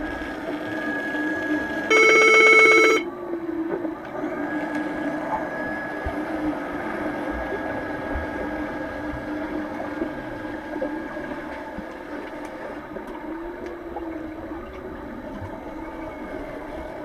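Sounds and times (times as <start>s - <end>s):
underwater hum and wash of water: 0.0s - 17.0s.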